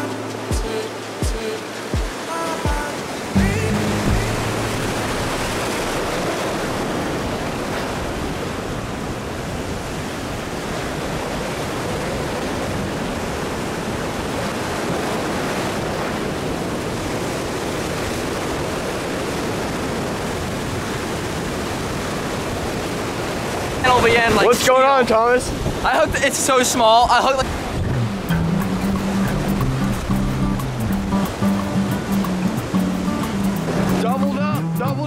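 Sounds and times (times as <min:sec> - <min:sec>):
ocean surf against rocks: 0:00.0 - 0:34.6
music notes: 0:03.4 - 0:06.2, 0:27.9 - 0:35.0.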